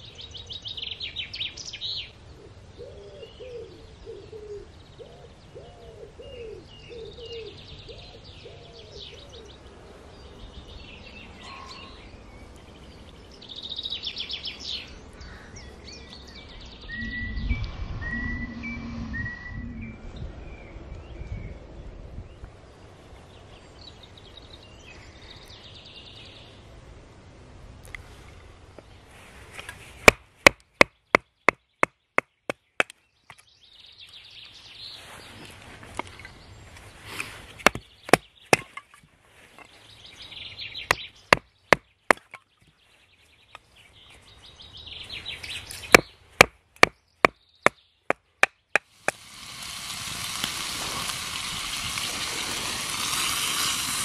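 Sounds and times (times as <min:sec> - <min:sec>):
wood splitting crackle: 0:37.2 - 0:39.0, 0:48.4 - 0:54.0.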